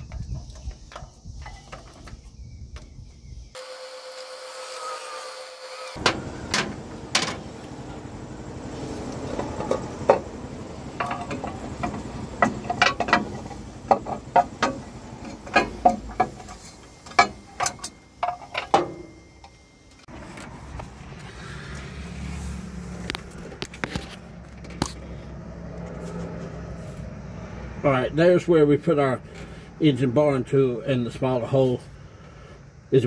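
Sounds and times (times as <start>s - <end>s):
metallic clicks and clanks of tools: 11.0s - 19.6s.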